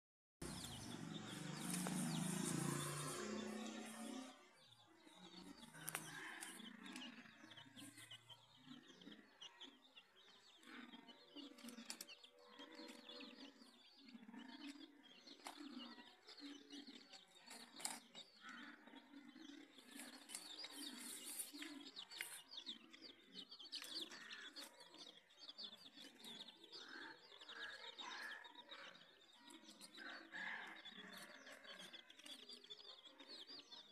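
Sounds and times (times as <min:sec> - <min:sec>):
chicks peeping: 0:00.4 - 0:33.9.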